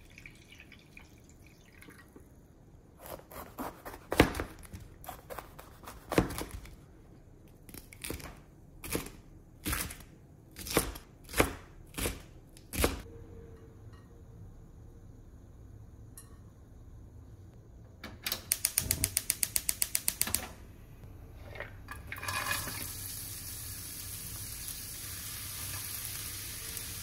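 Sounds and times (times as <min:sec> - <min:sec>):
running water trickling into bowl: 0:00.0 - 0:02.1.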